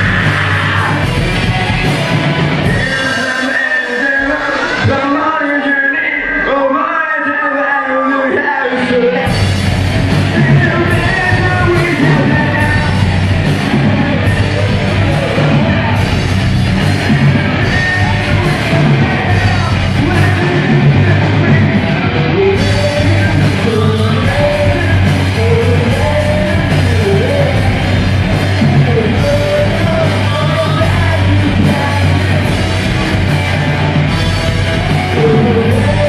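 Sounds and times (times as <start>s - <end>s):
person singing into microphone: 0.0s - 9.4s, 10.0s - 16.3s, 16.9s - 36.0s
live rock band playing: 0.0s - 36.0s.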